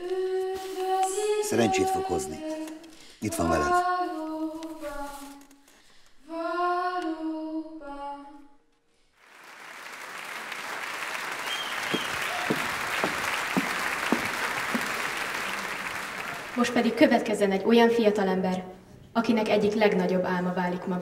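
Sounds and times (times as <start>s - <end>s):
woman singing: 0.0s - 5.6s, 6.2s - 8.5s
audience applause: 9.2s - 17.0s.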